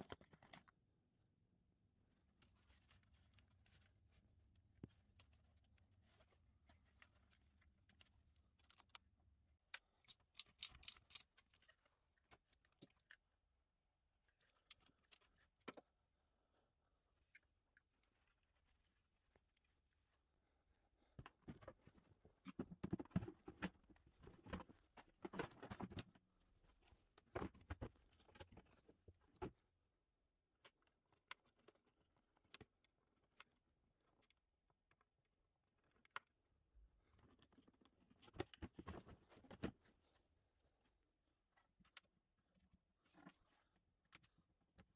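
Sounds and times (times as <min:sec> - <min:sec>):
plastic bodywork clicks and knocks: 0:21.2 - 0:26.2.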